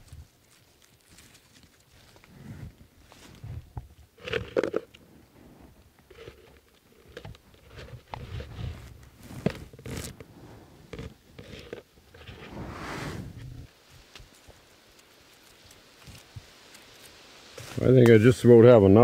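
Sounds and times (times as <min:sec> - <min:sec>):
leaves brushed by hand: 0:12.1 - 0:19.0.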